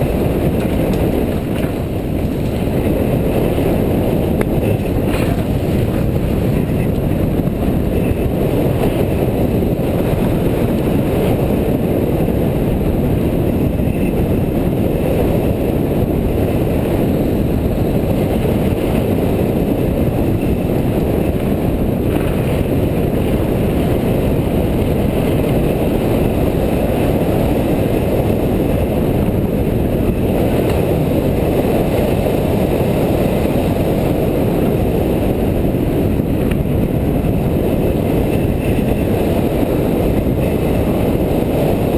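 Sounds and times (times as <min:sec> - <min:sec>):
bike tyre rumble: 0:00.0 - 0:41.9
wind rushing on microphone: 0:00.0 - 0:41.9.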